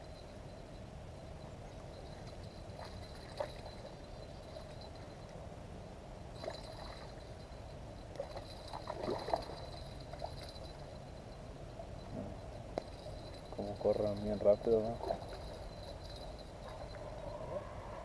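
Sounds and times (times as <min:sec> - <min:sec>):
steady outdoor hiss: 0:00.0 - 0:18.0
fish splashing in shallow water: 0:06.4 - 0:07.2, 0:08.2 - 0:10.9.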